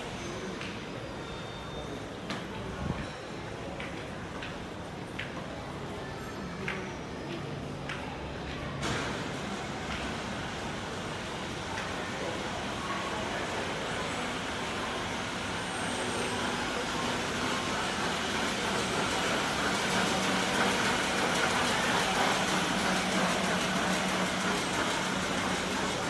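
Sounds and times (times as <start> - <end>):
elevator hum and air rush: 8.8 - 26.0.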